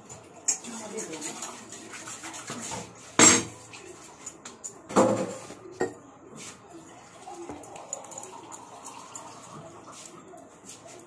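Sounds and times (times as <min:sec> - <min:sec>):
dishes clanking in a sink: 0:00.0 - 0:03.7, 0:04.6 - 0:06.0.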